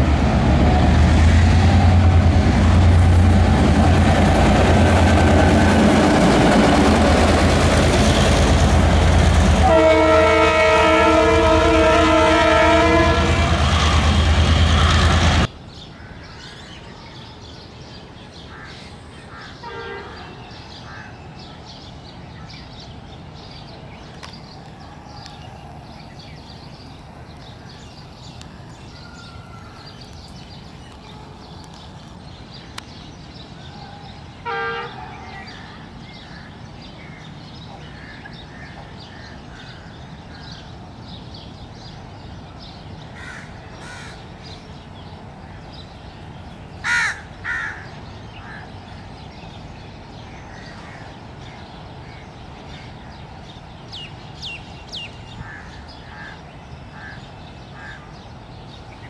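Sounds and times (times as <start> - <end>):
crows cawing: 43.2 - 44.2, 46.8 - 48.7.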